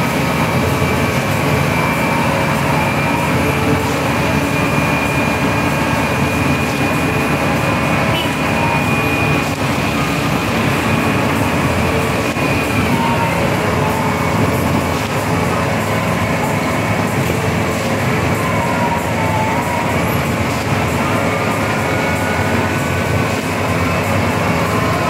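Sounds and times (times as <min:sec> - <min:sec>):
diesel engine running under load: 0:00.0 - 0:25.0
high hydraulic whine: 0:00.0 - 0:25.0.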